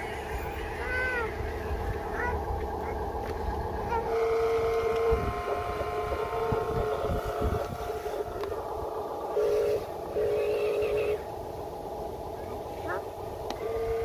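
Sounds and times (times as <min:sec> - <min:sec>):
low irregular rumble: 0:00.0 - 0:14.0
steady horn-like tone: 0:03.8 - 0:11.3, 0:13.5 - 0:14.0.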